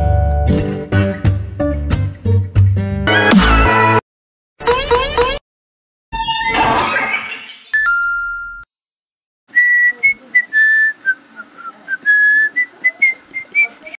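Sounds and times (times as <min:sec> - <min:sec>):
person whistling a tune: 0:09.6 - 0:13.7.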